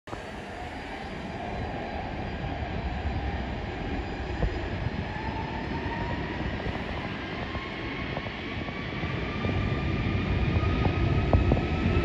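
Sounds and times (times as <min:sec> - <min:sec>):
jet engines at high power: 0:00.1 - 0:12.0.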